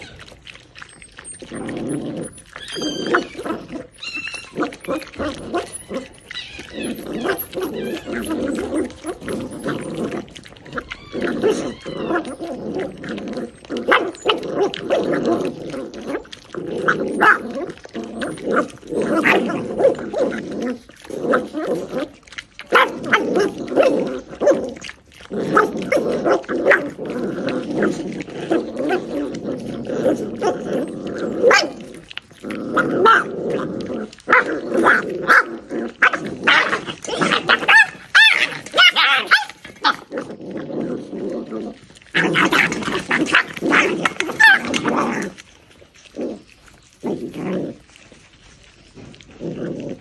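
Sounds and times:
puppies growling: 0:00.0 - 0:50.0
puppy yips and snaps: 0:02.6 - 0:03.4, 0:04.0 - 0:08.6, 0:36.0 - 0:40.0.

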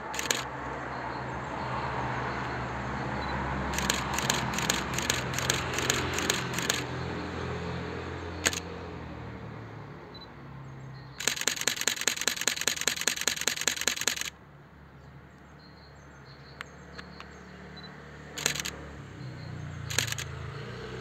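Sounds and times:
camera shutter burst: 0:00.0 - 0:00.5, 0:03.7 - 0:06.9, 0:08.4 - 0:08.7, 0:11.2 - 0:14.3, 0:18.4 - 0:18.8, 0:19.8 - 0:20.3
single camera shutter release: 0:00.0 - 0:00.5, 0:03.7 - 0:06.9, 0:08.4 - 0:08.7, 0:11.2 - 0:14.4, 0:18.4 - 0:18.8, 0:19.8 - 0:20.3.

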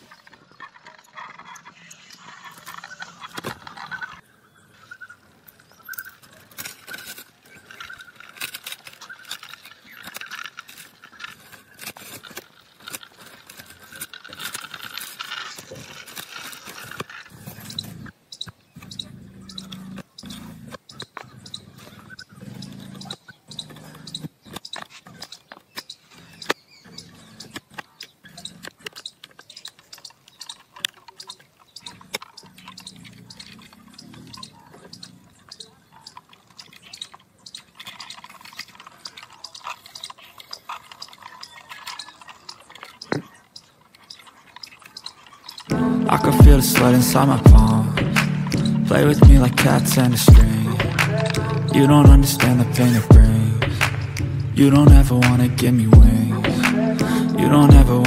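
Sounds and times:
toy car wheels rolling on concrete: 0:00.0 - 0:58.0.

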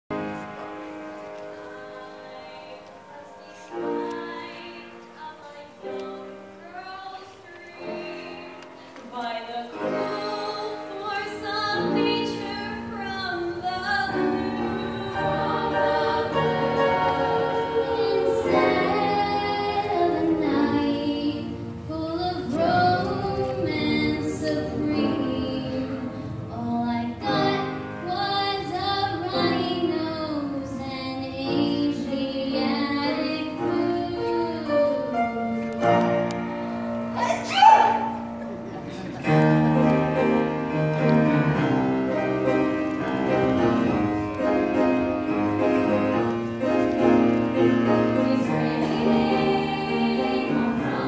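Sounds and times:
women's choir singing in harmony: 0:00.2 - 0:51.0.

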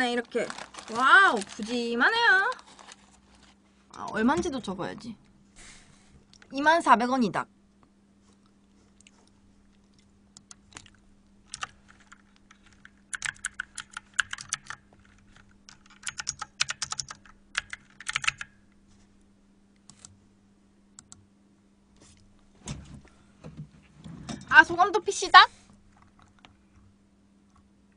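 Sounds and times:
typing on computer keyboard: 0:11.5 - 0:18.5.

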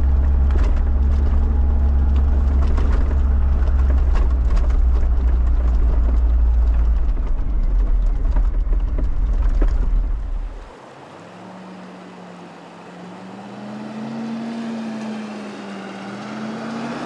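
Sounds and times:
wheels knocking over rocks: 0:00.0 - 0:10.7
truck drone inside cab: 0:00.0 - 0:17.0.

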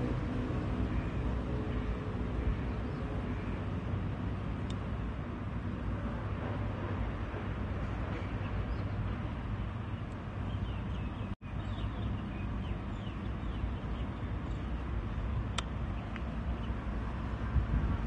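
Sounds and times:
low outdoor rumble: 0:00.0 - 0:18.0
bird chirping: 0:08.1 - 0:14.9.

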